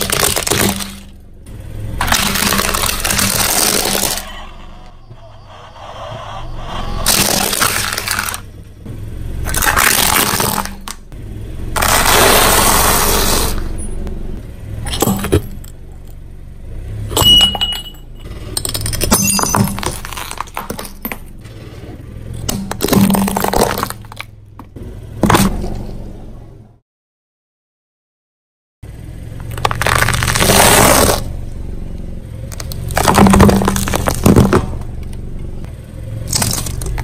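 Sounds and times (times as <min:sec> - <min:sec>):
shattering pieces clattering: 0:00.0 - 0:01.1, 0:02.0 - 0:04.2, 0:07.1 - 0:08.4, 0:09.5 - 0:11.0, 0:18.6 - 0:21.3, 0:22.4 - 0:24.2, 0:36.3 - 0:37.0
tyre crushing plastic toys: 0:00.0 - 0:01.1, 0:02.0 - 0:04.3, 0:07.0 - 0:08.4, 0:09.4 - 0:11.0, 0:11.8 - 0:13.6, 0:18.6 - 0:21.2, 0:22.4 - 0:25.8, 0:29.4 - 0:31.3, 0:32.5 - 0:34.9, 0:36.3 - 0:37.0
mug breaking: 0:18.6 - 0:21.2, 0:22.5 - 0:24.2.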